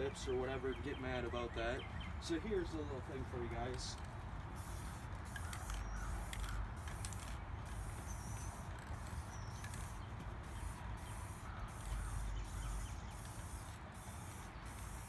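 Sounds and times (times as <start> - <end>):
spray paint can hissing: 4.5 - 15.0.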